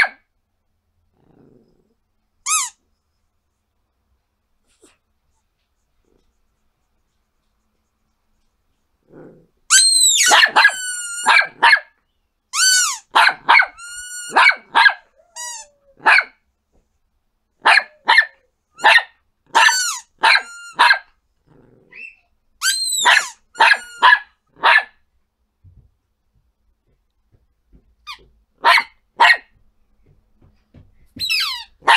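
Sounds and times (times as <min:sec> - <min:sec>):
small dog yapping: 0:09.7 - 0:11.9, 0:12.6 - 0:16.4, 0:17.6 - 0:21.1, 0:21.9 - 0:24.9, 0:28.1 - 0:29.5, 0:31.2 - 0:31.9.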